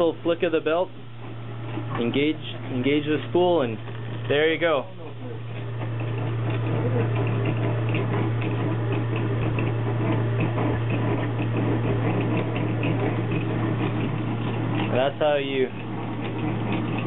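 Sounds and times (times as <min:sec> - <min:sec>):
low motor hum: 0:00.0 - 0:17.0
fast irregular clicking: 0:05.5 - 0:17.0.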